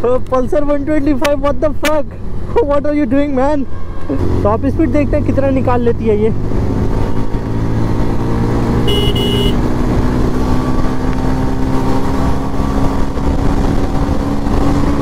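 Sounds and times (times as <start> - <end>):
motorcycle engine at high revs: 4.2 - 15.0
high double beep: 8.9 - 9.6
wind rush on microphone: 9.6 - 15.0.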